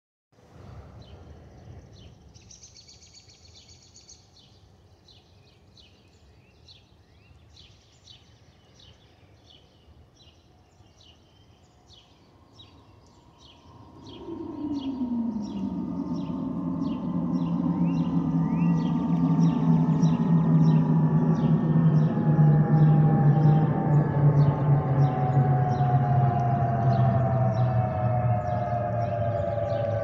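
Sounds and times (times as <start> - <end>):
songbird chirping: 0.6 - 30.0
distant jet rumble: 12.2 - 30.0
aircraft whistle falling in pitch: 14.0 - 30.0.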